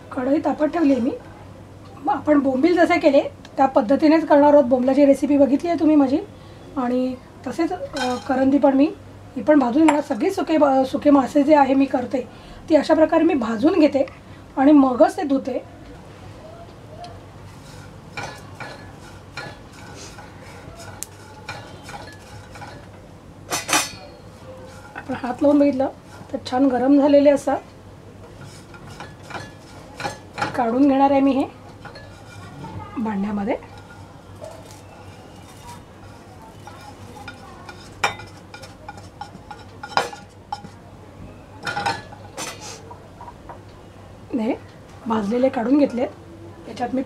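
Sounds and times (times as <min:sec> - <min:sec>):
spatula scraping a pan: 0:17.4 - 0:22.9, 0:23.5 - 0:26.8, 0:28.3 - 0:30.9, 0:31.6 - 0:40.8
dry shrimp rustling: 0:33.6 - 0:38.5.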